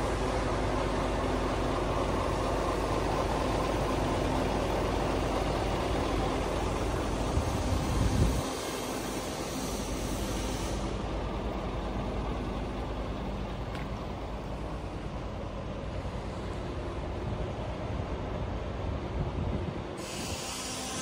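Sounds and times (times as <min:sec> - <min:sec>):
diesel engine idling: 0:00.0 - 0:21.0
high hiss: 0:06.6 - 0:11.6, 0:19.9 - 0:21.0.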